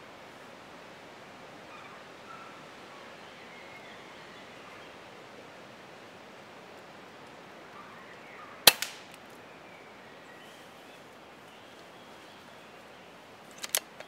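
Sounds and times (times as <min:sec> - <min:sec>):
faint outdoor background: 0:00.0 - 0:14.0
air rifle shot crack: 0:08.6 - 0:09.2.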